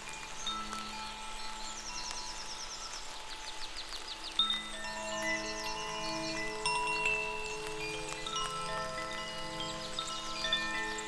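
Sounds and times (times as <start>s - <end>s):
rain hiss: 0.0s - 11.0s
metal wind chime ringing: 4.4s - 11.0s.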